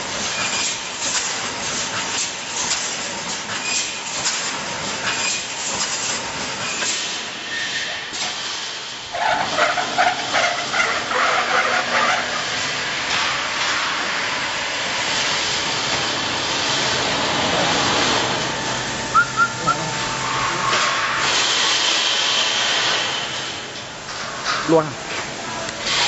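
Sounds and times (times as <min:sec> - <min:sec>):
clatter of welding cycles: 0:00.0 - 0:19.1, 0:20.7 - 0:26.0
welding machine hissing: 0:00.0 - 0:23.8, 0:25.7 - 0:26.0
metallic squealing and clanking: 0:09.1 - 0:12.6, 0:19.4 - 0:21.6.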